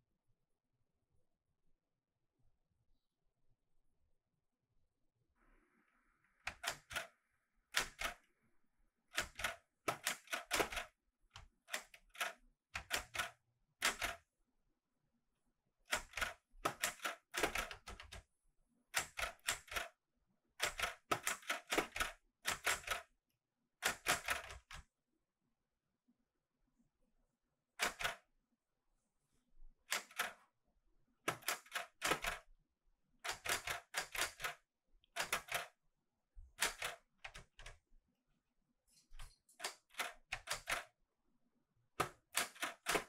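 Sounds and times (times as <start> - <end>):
typewriter keys clacking: 11.7 - 14.2, 20.6 - 23.0, 31.3 - 32.4, 33.3 - 34.6, 35.2 - 35.7, 36.6 - 37.7, 39.6 - 40.9, 42.0 - 43.0.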